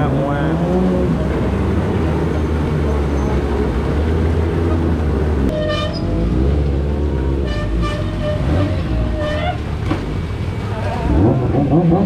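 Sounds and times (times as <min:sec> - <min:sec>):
vehicle engines idling: 0:00.0 - 0:12.0
horn toots: 0:05.4 - 0:06.3, 0:07.4 - 0:09.7.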